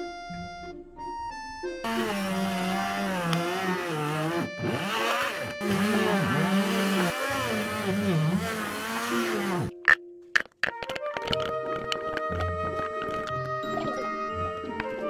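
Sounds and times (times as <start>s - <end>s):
stick blender running: 1.8s - 9.7s.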